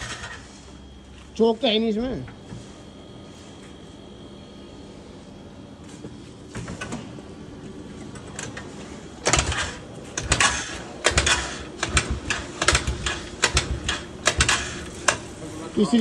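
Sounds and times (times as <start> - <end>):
scooter clunking and rattling: 9.3 - 15.3.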